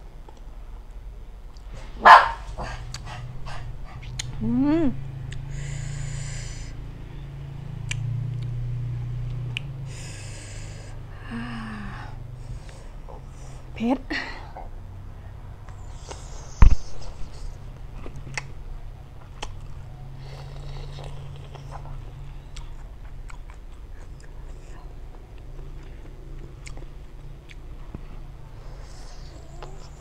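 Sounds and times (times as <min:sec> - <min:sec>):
wet mouth clicks and smacks: 0:04.0 - 0:04.4, 0:07.8 - 0:08.6
breathy hisses: 0:05.4 - 0:06.9, 0:09.8 - 0:13.7, 0:28.5 - 0:30.0
chewing shrimp: 0:19.2 - 0:30.0.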